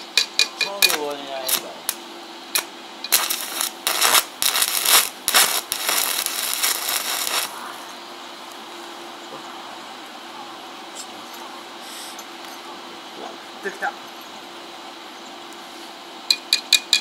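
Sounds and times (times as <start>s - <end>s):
welding arc crackling: 0.0s - 7.8s.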